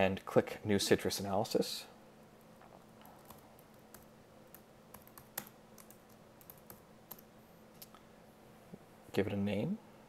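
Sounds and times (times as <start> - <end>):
faint keyboard typing: 2.4 - 8.0.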